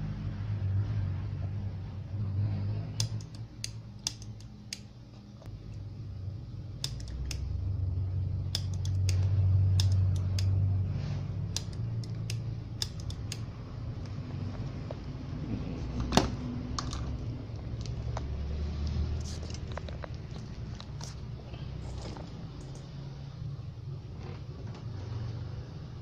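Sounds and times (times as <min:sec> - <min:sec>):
steady low hum: 0:00.0 - 0:26.0
sharp clicks and snaps: 0:03.0 - 0:04.9, 0:06.8 - 0:07.5, 0:08.5 - 0:10.6, 0:11.5 - 0:14.2.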